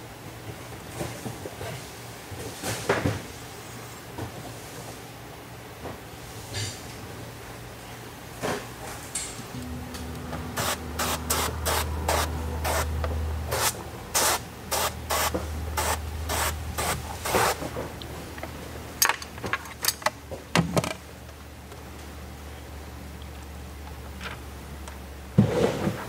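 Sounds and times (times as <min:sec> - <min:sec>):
low hum: 0:09.5 - 0:18.9.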